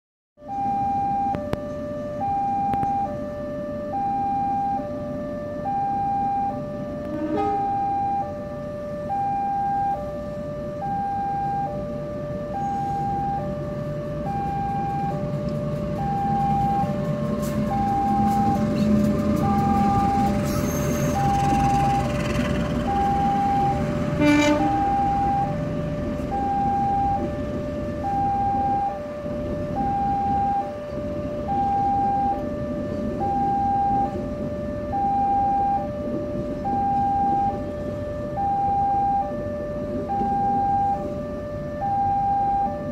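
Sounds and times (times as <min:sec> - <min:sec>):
diesel locomotive engine: 0:00.4 - 0:42.9
two-tone level crossing alarm: 0:00.4 - 0:42.9
train wheels rumbling: 0:14.6 - 0:28.0.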